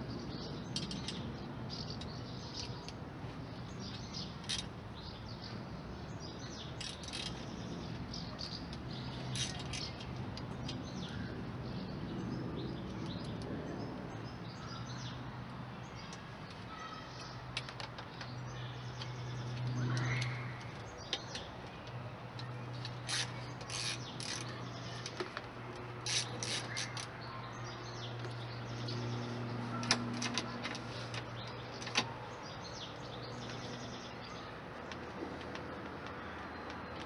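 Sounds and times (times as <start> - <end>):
parts clicking and rattling: 0.7 - 3.0, 6.7 - 11.1, 17.5 - 27.2.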